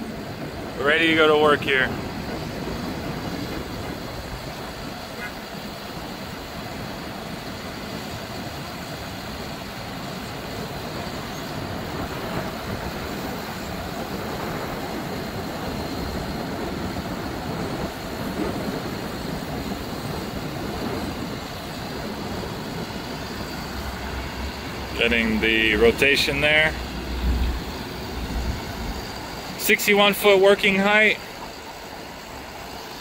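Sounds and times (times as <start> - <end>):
diesel engine running: 10.4 - 33.0.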